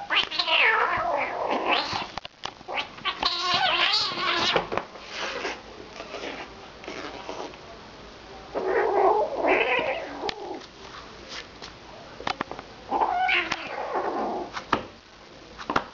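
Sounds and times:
kitten yowling: 0:02.8 - 0:04.6, 0:12.9 - 0:14.4.

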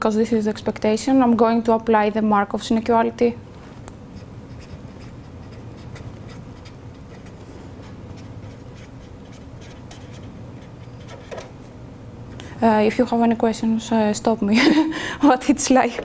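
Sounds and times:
steady low hum: 0:00.0 - 0:16.0
pen scratching on paper: 0:04.2 - 0:11.3.

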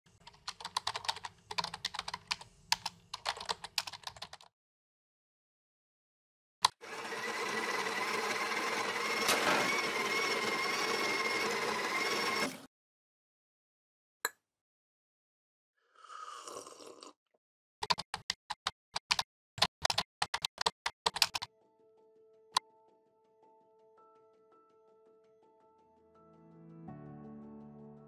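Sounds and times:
fast typing on laptop keyboard: 0:00.2 - 0:04.5, 0:19.0 - 0:21.5.

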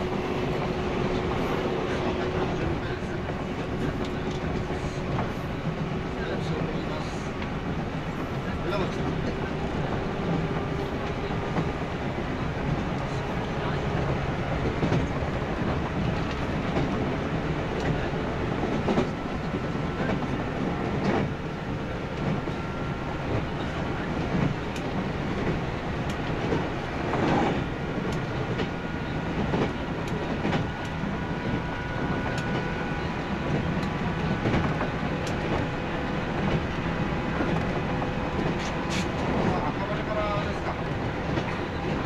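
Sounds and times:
train rumbling at speed: 0:00.0 - 0:42.0
rail-joint clacks: 0:22.1 - 0:42.0.

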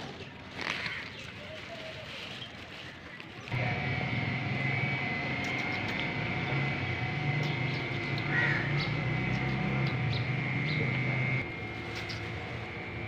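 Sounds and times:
steady mechanical hum: 0:03.4 - 0:13.0
high whine: 0:03.5 - 0:13.0.

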